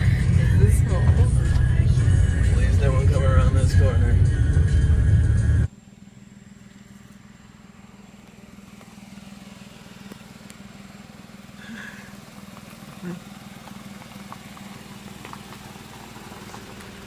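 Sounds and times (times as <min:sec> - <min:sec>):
car engine and tyres in cabin: 0:00.0 - 0:17.0
quiet outdoor ambience: 0:05.6 - 0:17.0.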